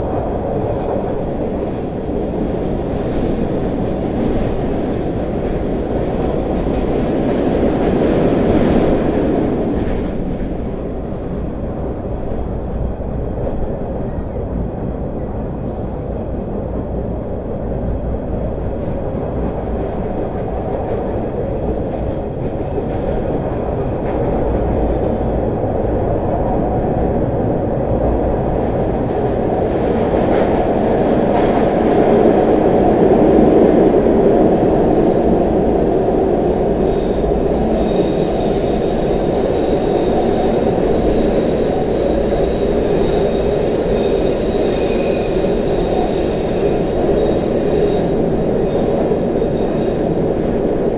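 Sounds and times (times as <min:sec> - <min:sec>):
rumble of wheels on rail: 0:00.0 - 0:50.9.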